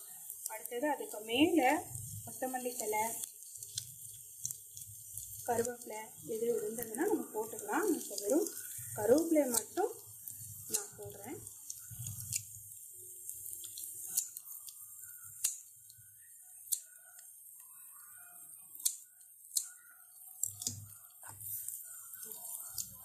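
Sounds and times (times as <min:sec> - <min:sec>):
scissors snipping leaves: 0:05.5 - 0:09.9, 0:10.7 - 0:12.5, 0:14.0 - 0:15.6.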